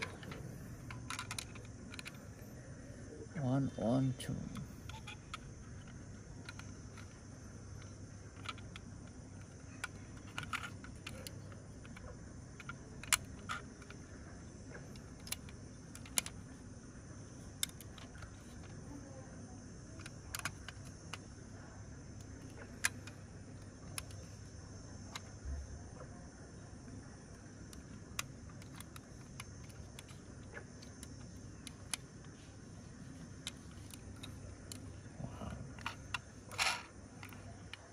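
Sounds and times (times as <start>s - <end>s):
toy doors clicking: 0.0s - 2.5s, 4.2s - 18.9s, 19.9s - 21.5s, 27.3s - 37.9s
faint low hum: 0.0s - 37.9s.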